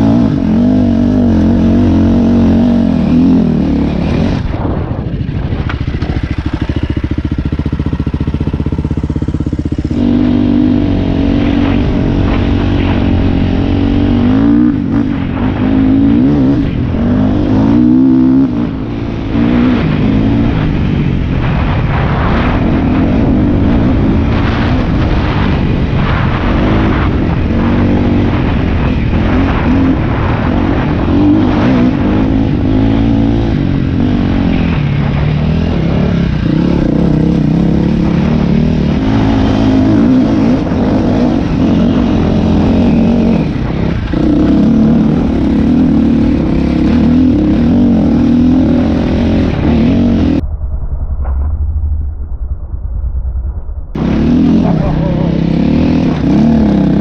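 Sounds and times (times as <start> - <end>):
dirt bike engine revving: 0.0 - 50.4, 54.0 - 57.0.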